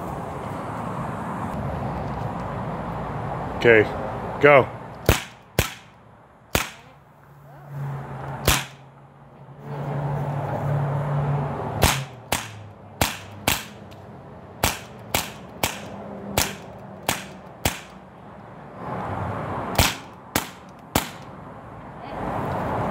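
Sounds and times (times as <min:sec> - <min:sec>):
bb gun shots: 0:05.0 - 0:06.9, 0:08.4 - 0:08.8, 0:11.8 - 0:13.8, 0:14.6 - 0:18.0, 0:19.8 - 0:21.3.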